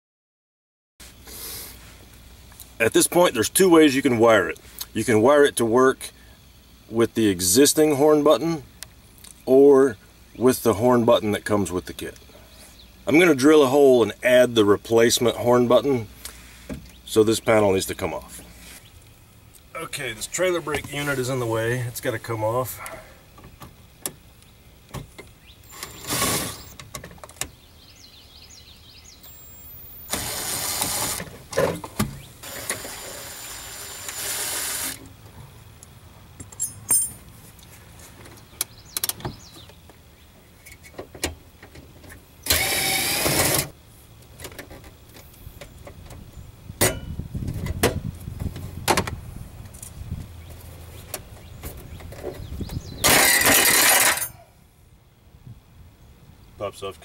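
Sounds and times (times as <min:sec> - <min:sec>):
cordless drill spinning: 0:30.0 - 0:31.2, 0:32.4 - 0:35.0, 0:42.5 - 0:43.6.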